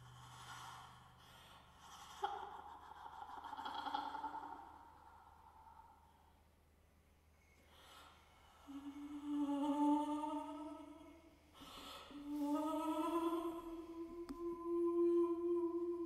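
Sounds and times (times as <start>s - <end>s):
singer breath: 11.6s - 12.2s.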